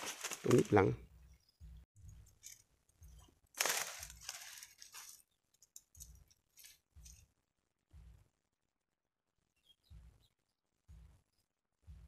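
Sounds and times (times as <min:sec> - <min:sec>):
reeds and grass rustling: 0:00.0 - 0:00.9, 0:03.5 - 0:07.2.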